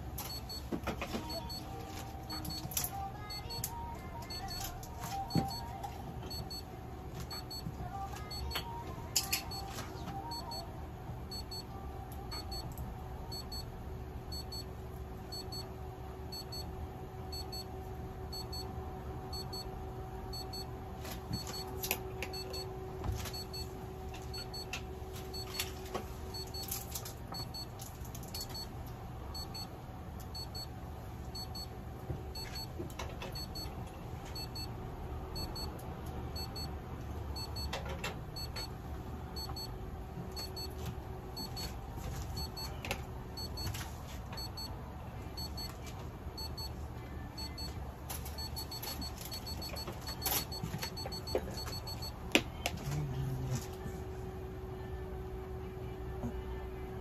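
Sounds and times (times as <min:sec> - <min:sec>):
electrical equipment hum: 0:00.0 - 0:57.0
faint high beep: 0:47.4 - 0:47.7.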